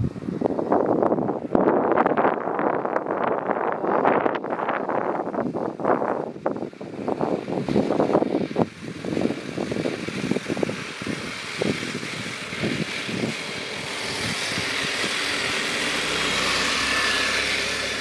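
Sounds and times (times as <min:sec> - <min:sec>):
wind buffeting microphone: 0:00.0 - 0:18.0
model tank drive whirring: 0:07.2 - 0:18.0.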